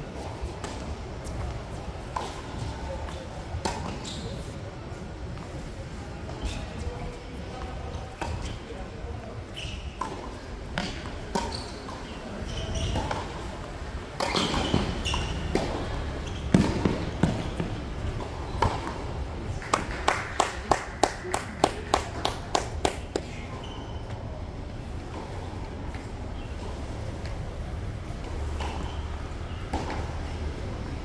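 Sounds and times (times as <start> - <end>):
tennis ball bouncing: 14.2 - 23.3.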